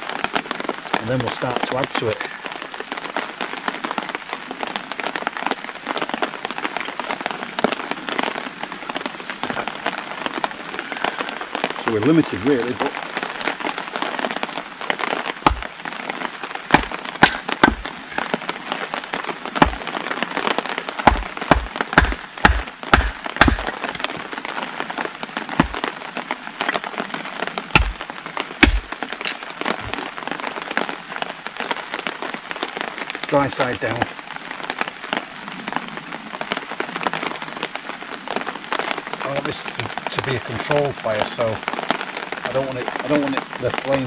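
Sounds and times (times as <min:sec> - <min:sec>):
rain pattering: 0:00.0 - 0:44.0
axe splitting sticks: 0:15.4 - 0:15.7, 0:16.7 - 0:18.3, 0:19.6 - 0:19.9, 0:21.0 - 0:24.1, 0:25.6 - 0:25.9, 0:27.7 - 0:28.0, 0:28.6 - 0:29.4.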